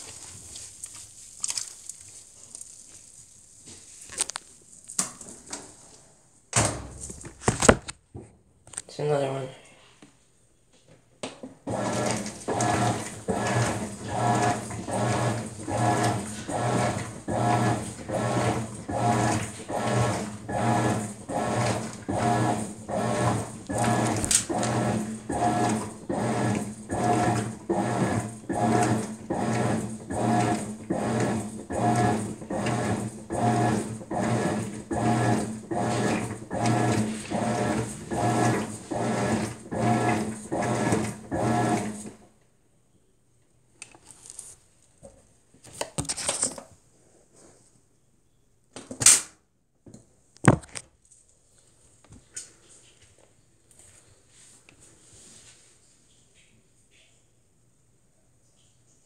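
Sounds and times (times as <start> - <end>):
washing machine agitating: 11.6 - 42.2.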